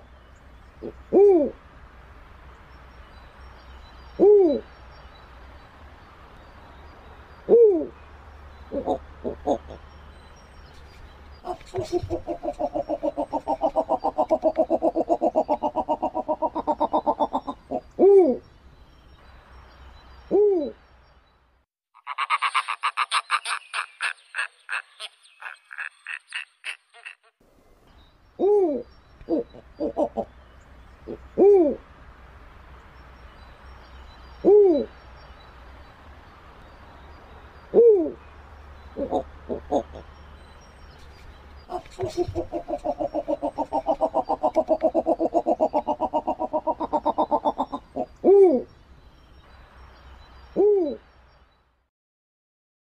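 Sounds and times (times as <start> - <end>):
owl hoots: 0.8 - 1.6, 7.4 - 8.0, 8.7 - 9.8, 11.4 - 18.4, 28.4 - 30.3, 37.7 - 38.2, 39.0 - 40.0, 41.7 - 48.7, 50.5 - 51.0
owl rapid chattering: 11.4 - 18.0, 41.7 - 48.3.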